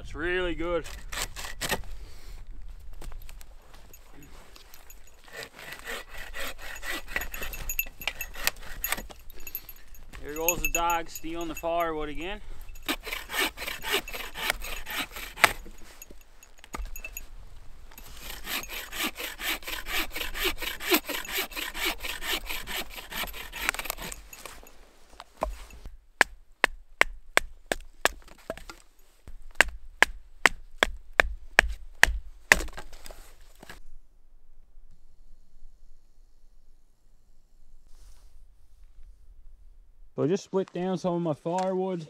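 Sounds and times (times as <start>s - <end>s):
bow saw cutting wood: 0.8s - 1.8s, 5.2s - 11.8s, 12.8s - 17.1s, 18.0s - 24.7s
sharp knocks of wood splitting: 12.9s - 15.8s, 26.2s - 28.8s, 29.5s - 33.1s.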